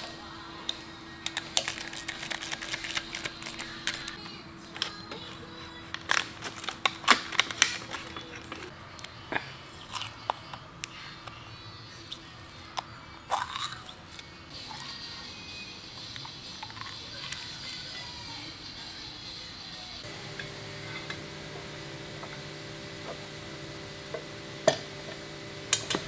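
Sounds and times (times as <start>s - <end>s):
plastic packaging crinkling: 1.6s - 4.2s, 5.9s - 8.7s.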